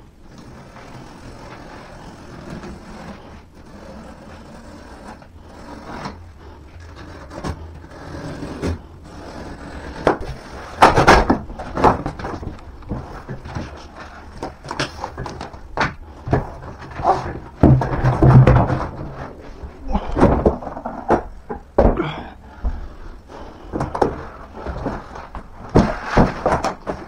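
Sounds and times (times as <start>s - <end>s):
panels and cardboard scraping: 0.0s - 27.0s
loud knocks and clatters: 10.0s - 19.3s, 23.8s - 27.0s.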